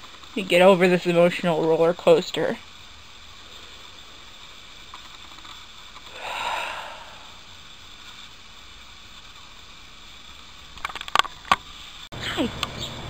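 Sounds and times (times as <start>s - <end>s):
faint room hiss: 0.0s - 13.0s
breathy exhale: 6.1s - 7.6s.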